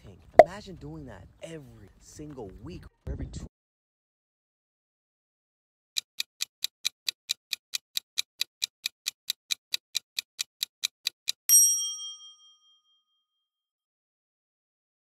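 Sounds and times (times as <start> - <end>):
timer clock ticking: 6.0 - 11.5.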